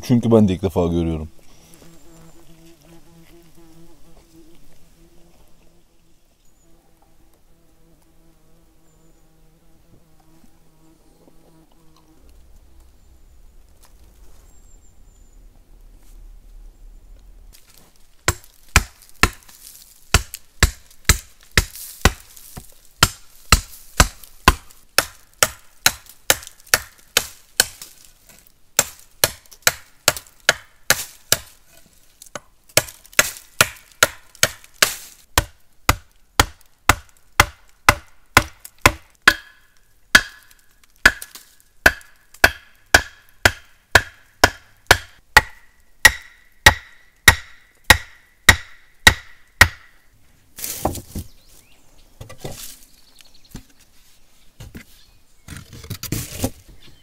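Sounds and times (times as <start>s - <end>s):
sharp chopping strikes: 18.3s - 19.5s, 20.1s - 27.9s, 40.2s - 49.9s.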